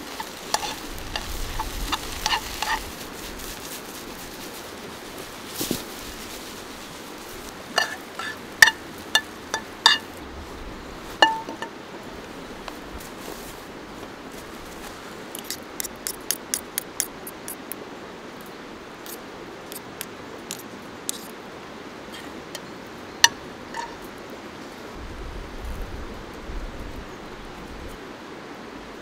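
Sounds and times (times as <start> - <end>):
river rushing: 0.0 - 19.6
cutlery clinking on metal plate: 7.8 - 10.1
spoon clanking in frying pan: 7.8 - 10.1.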